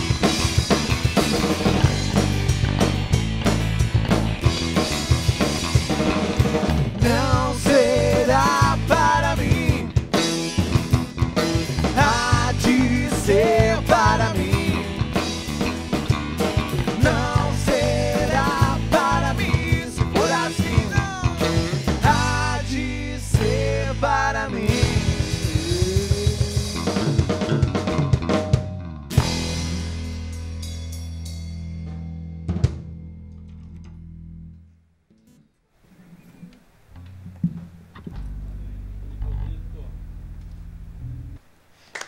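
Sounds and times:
fast drum run: 0:00.0 - 0:30.2
live band playing: 0:00.0 - 0:31.2.

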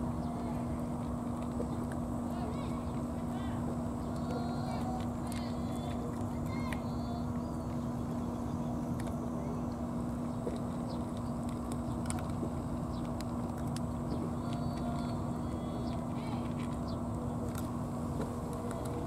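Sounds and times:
cats crunching dry kibble: 0:00.0 - 0:19.0
low hum and rumble: 0:00.0 - 0:19.0.

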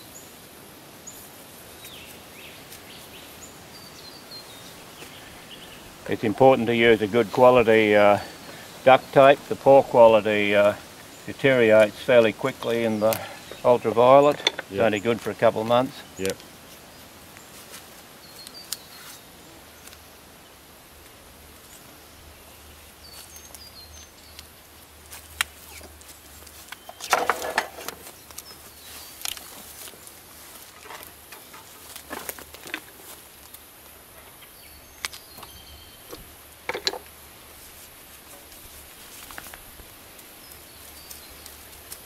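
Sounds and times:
small birds chirping: 0:00.0 - 0:37.2, 0:38.2 - 0:42.0
clicks and knocks from handling tools: 0:14.3 - 0:14.7, 0:26.7 - 0:28.4, 0:36.7 - 0:37.1.

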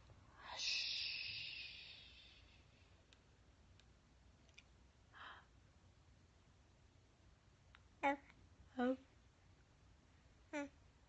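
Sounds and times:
person whispering hush: 0:00.3 - 0:02.6.

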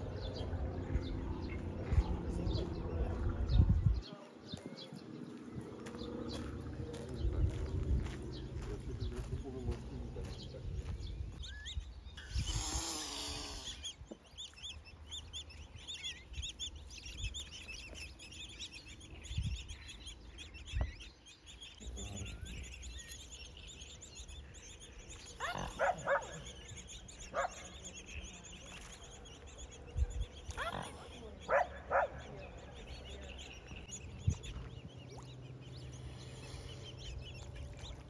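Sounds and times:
low rumble: 0:00.0 - 0:04.1, 0:05.0 - 0:12.0
small birds chirping: 0:00.0 - 0:38.0
short loud bird calls: 0:11.5 - 0:14.0.

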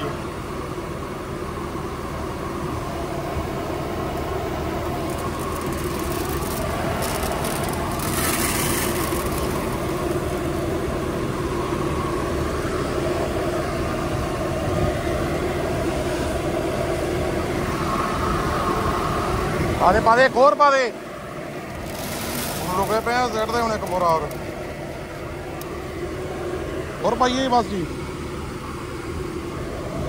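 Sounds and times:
tractor diesel engine idling: 0:00.0 - 0:30.0
granules pouring into hopper: 0:04.8 - 0:10.4, 0:21.7 - 0:24.4.

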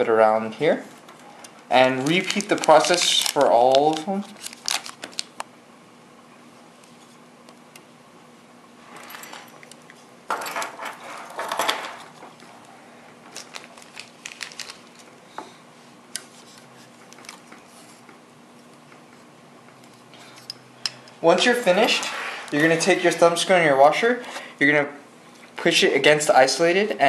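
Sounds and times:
hands rustling small parts: 0:01.1 - 0:05.4, 0:13.3 - 0:15.2.

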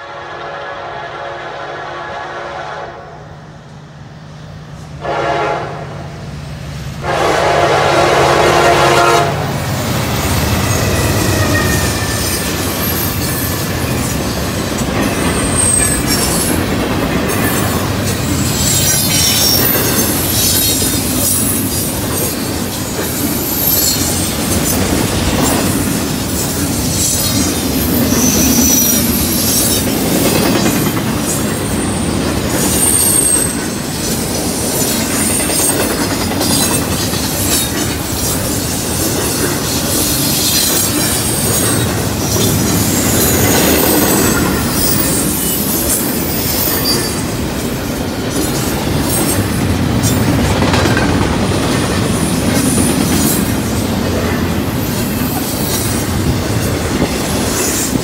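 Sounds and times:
train wheel rumble: 0:00.0 - 0:58.0
high-pitched flange squeals: 0:10.0 - 0:14.3, 0:18.3 - 0:21.7, 0:27.0 - 0:29.9, 0:40.0 - 0:47.4
clatter over rail joints: 0:48.3 - 0:54.4.

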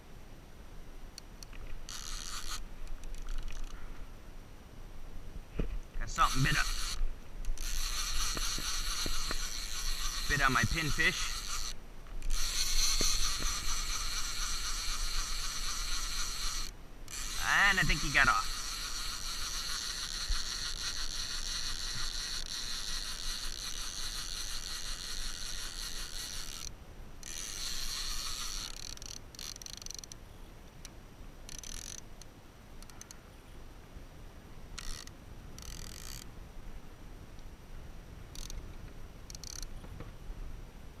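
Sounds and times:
fishing reel whirring: 0:01.8 - 0:03.8, 0:06.0 - 0:30.2, 0:31.5 - 0:32.2, 0:34.8 - 0:36.3, 0:38.3 - 0:38.6, 0:39.3 - 0:39.7.

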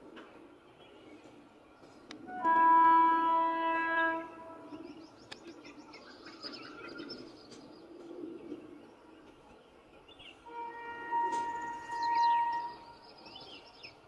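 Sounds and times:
faint outdoor ambience: 0:00.0 - 0:14.0
birds chirping: 0:00.1 - 0:14.0
locomotive horn: 0:02.3 - 0:04.8, 0:10.4 - 0:13.0.

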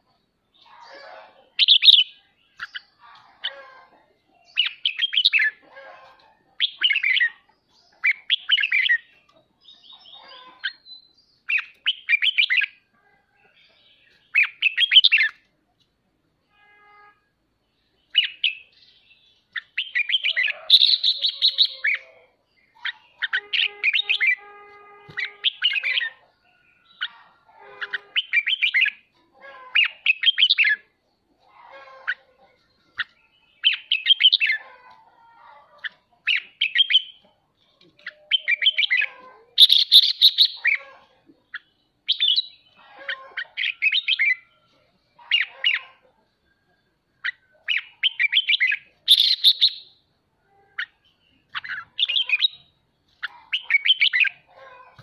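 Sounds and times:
bird harsh chattering calls: 0:19.5 - 0:30.9, 0:38.0 - 0:44.5, 0:45.2 - 0:46.0, 0:47.2 - 0:49.9, 0:50.8 - 0:55.0.

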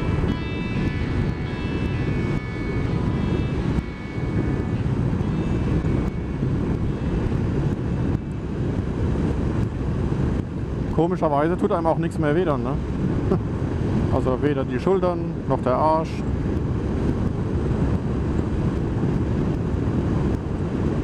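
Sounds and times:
motorcycle engine at speed: 0:00.0 - 0:11.1, 0:16.2 - 0:21.0
wind rush on microphone: 0:00.0 - 0:21.0.

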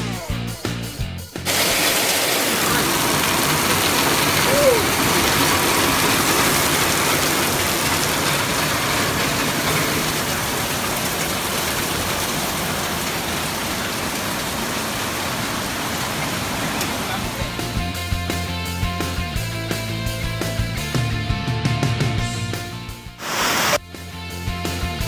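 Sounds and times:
heavy rain on pavement: 0:01.5 - 0:18.0, 0:23.2 - 0:23.8.

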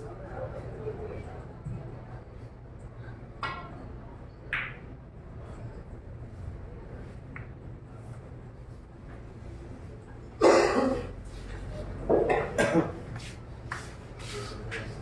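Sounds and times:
person coughing: 0:10.4 - 0:11.1, 0:12.6 - 0:13.0.

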